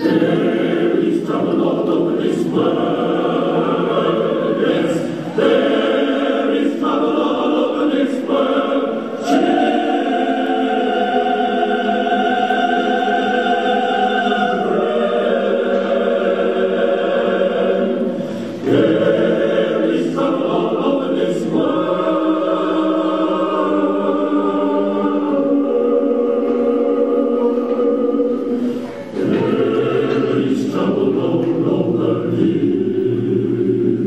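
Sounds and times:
choir singing sustained chords: 0.0 - 34.0.

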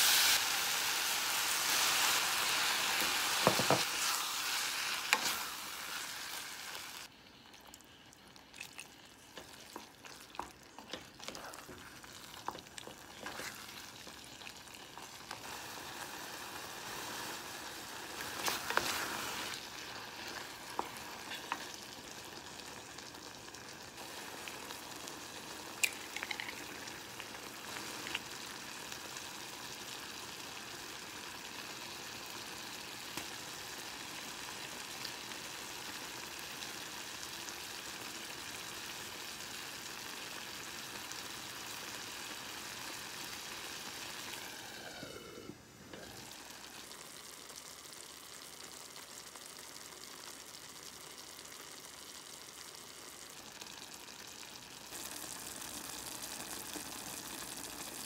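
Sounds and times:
sauce sizzling in a saucepan: 0.0 - 58.0
wooden spatula scraping: 9.4 - 13.8, 18.2 - 19.6.

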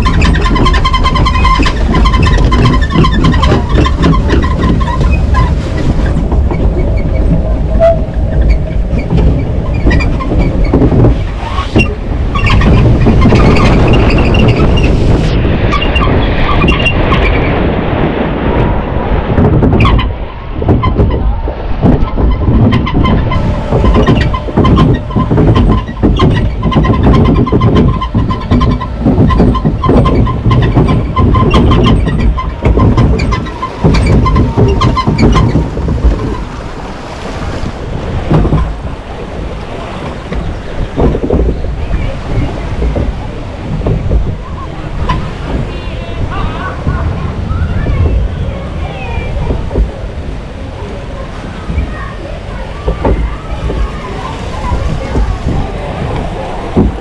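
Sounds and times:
lift clattering rumble: 0.0 - 57.0.

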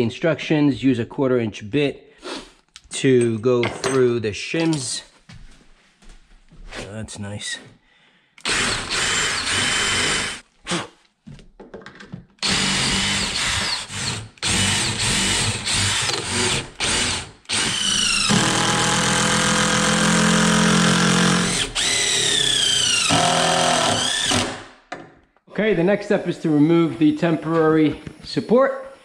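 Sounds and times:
impact driver running screw: 8.4 - 10.4, 12.4 - 24.7
cordless drill whining: 8.4 - 10.8, 12.4 - 24.7.

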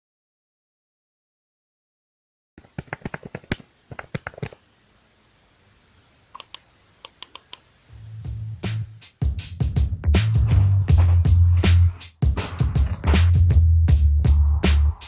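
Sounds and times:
keyboard key clicks: 2.6 - 4.6, 6.4 - 7.6
background music: 8.0 - 15.0.

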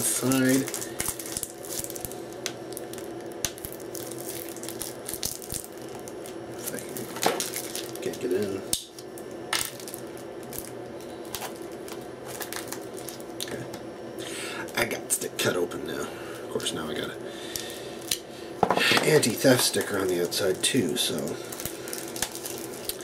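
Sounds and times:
plastic wrap crinkling and tearing: 0.0 - 13.7, 19.1 - 23.0.

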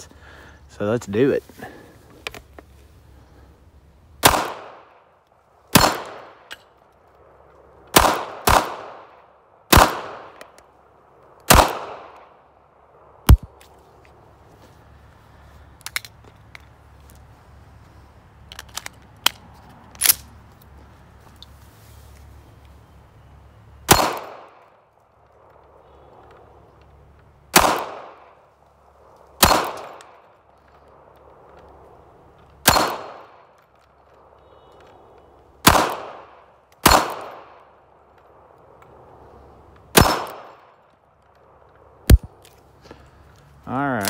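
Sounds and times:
pistol shots: 4.2 - 4.9, 5.7 - 6.5, 7.9 - 9.1, 9.7 - 10.4, 11.5 - 12.3, 23.9 - 24.6, 27.5 - 28.3, 29.4 - 30.1, 32.6 - 33.4, 35.6 - 37.6, 39.9 - 40.6.

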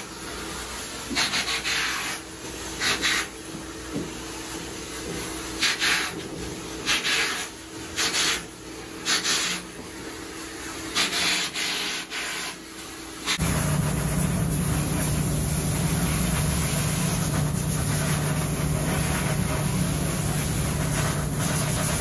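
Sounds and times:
steady low rumble: 13.4 - 22.0.

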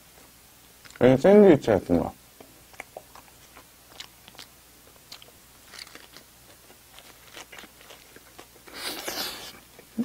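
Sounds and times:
person chewing bread: 2.4 - 9.9.

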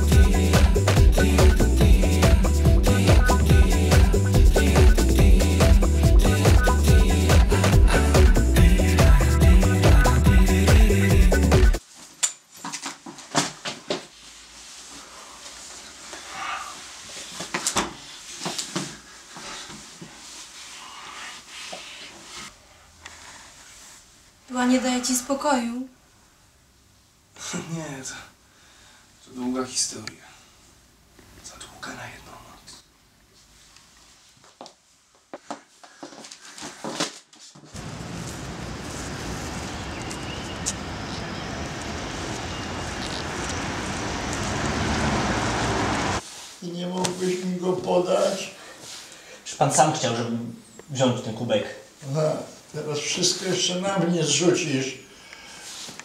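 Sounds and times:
clothing rustling: 11.8 - 22.5
city street traffic: 37.8 - 46.2.

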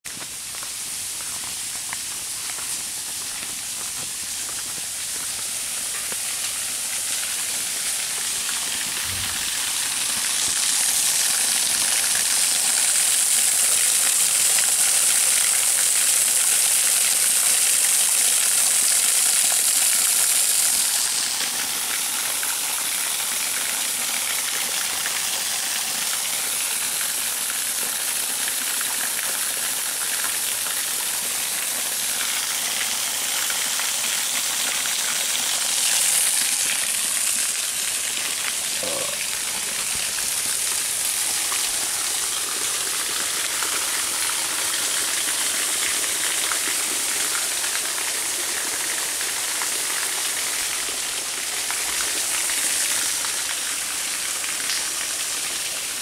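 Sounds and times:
waterfall rushing: 35.0 - 54.3.

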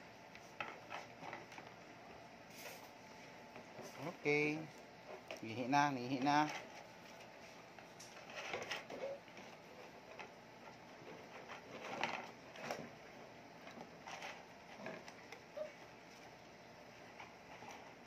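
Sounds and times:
puppies eating: 6.5 - 18.0.

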